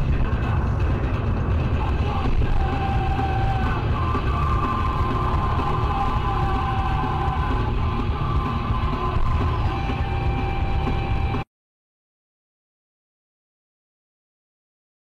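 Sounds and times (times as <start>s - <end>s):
music from car radio: 0.0s - 11.4s
road and engine rumble: 0.0s - 11.4s.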